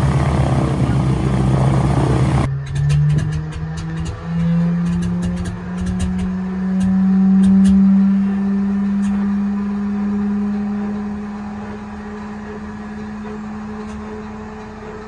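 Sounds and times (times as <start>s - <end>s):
engine pops: 2.4s - 7.8s.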